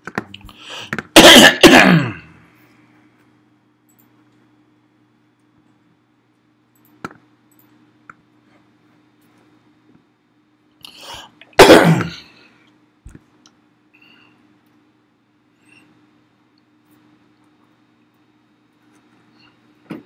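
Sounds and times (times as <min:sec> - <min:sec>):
low electrical hum: 0:00.0 - 0:20.0
short breath: 0:00.5 - 0:00.9
man coughing: 0:00.7 - 0:02.4, 0:11.6 - 0:12.4.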